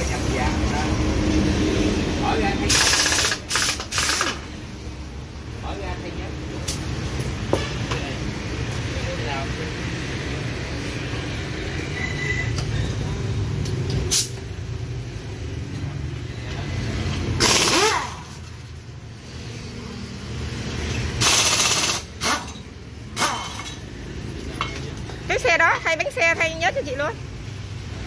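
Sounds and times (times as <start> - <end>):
motorbike traffic rumble: 0.0 - 21.2, 22.0 - 28.0.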